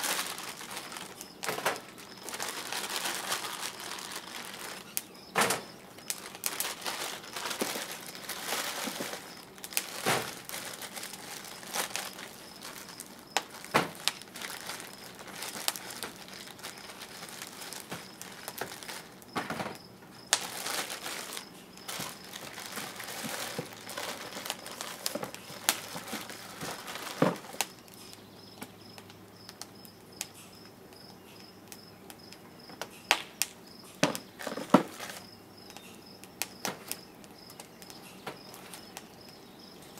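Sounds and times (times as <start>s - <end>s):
fire low hiss: 0.0s - 19.4s
firewood crackling and popping: 0.0s - 39.9s.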